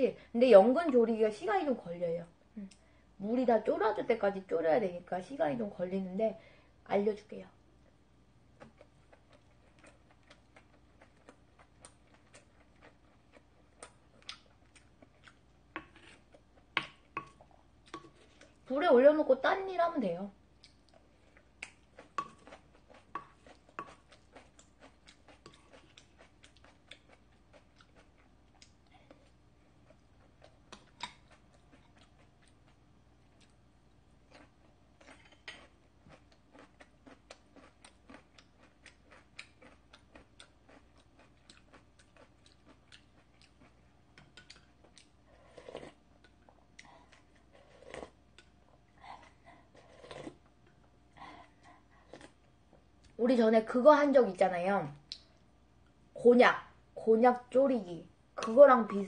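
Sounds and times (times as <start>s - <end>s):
person chewing food: 8.5s - 18.7s, 20.4s - 53.2s.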